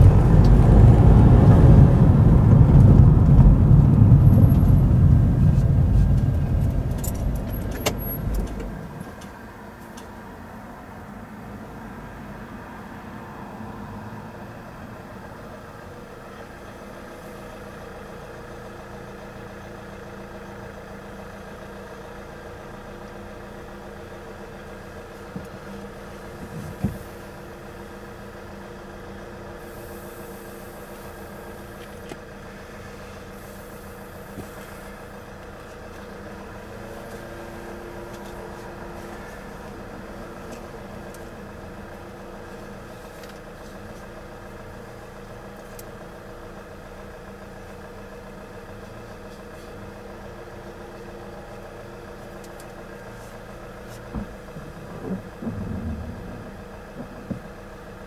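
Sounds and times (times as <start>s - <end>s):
vehicle engine idling: 0.0s - 58.0s.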